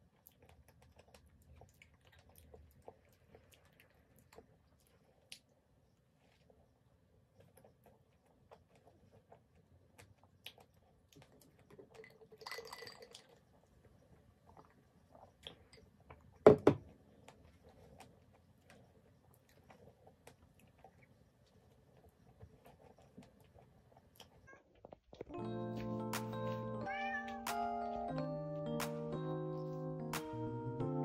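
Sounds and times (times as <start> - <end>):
person chewing soft food: 0.0 - 12.0, 13.0 - 26.4
glass mug knocking on table: 16.5 - 16.8.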